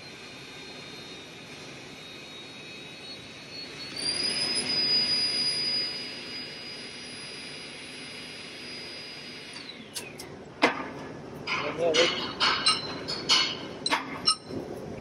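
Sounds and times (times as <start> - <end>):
hydraulic pump whine: 0.0 - 11.1, 12.1 - 15.0
sharp metal knock: 11.5 - 14.2.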